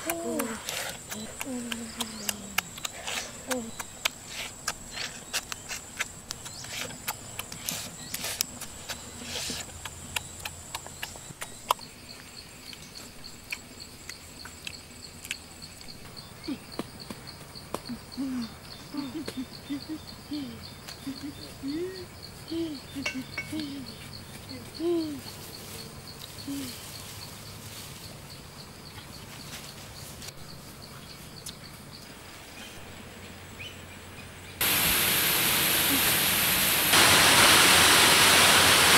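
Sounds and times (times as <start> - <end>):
insect trilling: 0.0 - 17.0, 17.8 - 27.3.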